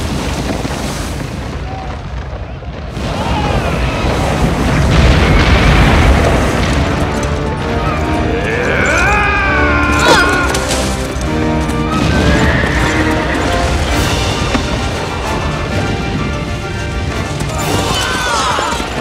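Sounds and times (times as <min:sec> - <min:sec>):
deep rumble of avalanche: 0:00.0 - 0:19.0
dramatic orchestral music: 0:04.2 - 0:19.0.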